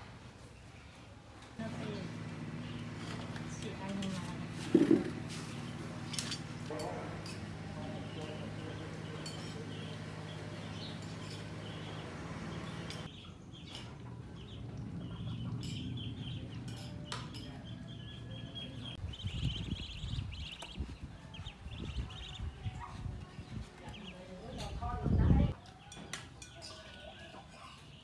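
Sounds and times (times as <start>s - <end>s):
birds chirping: 0.4s - 28.0s
low hum: 1.6s - 20.7s.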